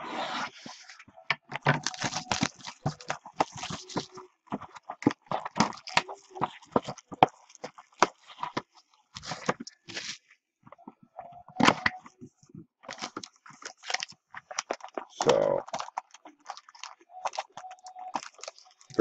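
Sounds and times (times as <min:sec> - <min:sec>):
plastic rustle: 0:00.5 - 0:10.9, 0:11.6 - 0:19.0
shrink wrap crackling and tearing: 0:01.7 - 0:10.2, 0:12.8 - 0:19.0.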